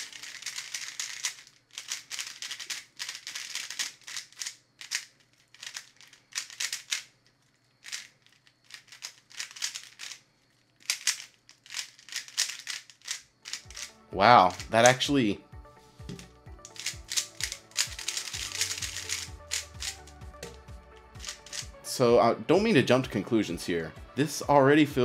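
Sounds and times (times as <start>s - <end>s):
plastic puzzle cube turning: 0.0s - 13.9s, 16.1s - 21.7s.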